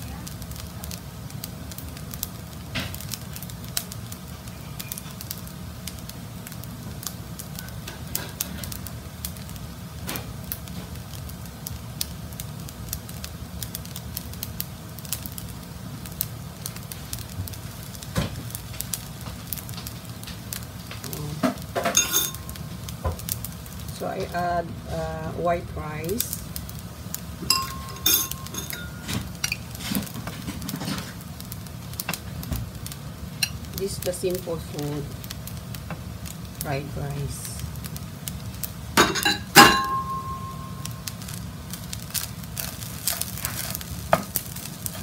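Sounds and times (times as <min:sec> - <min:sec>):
rice crackling in a pan: 0:00.0 - 0:45.0
pan clattering: 0:21.8 - 0:22.4, 0:27.4 - 0:31.1, 0:39.0 - 0:40.8.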